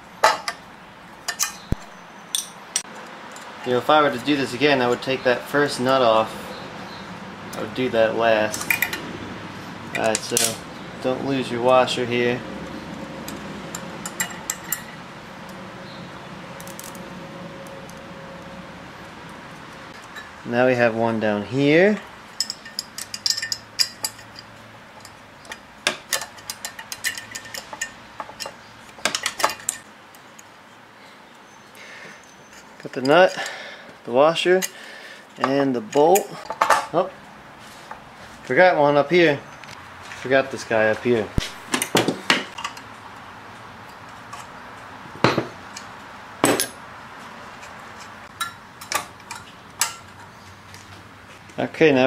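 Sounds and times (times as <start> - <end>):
metal hardware clicking and clinking: 0.2 - 0.6, 1.2 - 4.3, 8.4 - 9.0, 9.9 - 10.6, 13.2 - 15.6, 16.6 - 17.0, 21.9 - 30.5, 35.4 - 37.0, 41.4 - 42.9, 45.2 - 46.8, 47.6 - 50.4.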